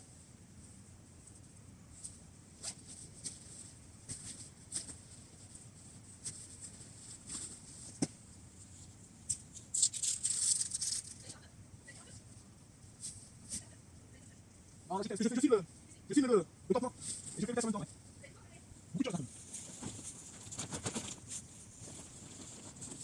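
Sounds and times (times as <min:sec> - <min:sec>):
tent fabric rustling: 0:01.9 - 0:11.0, 0:19.2 - 0:23.0.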